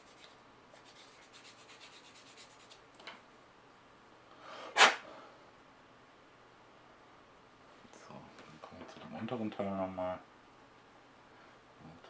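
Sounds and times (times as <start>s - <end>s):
sanding stick rubbing plastic: 0.0s - 2.8s.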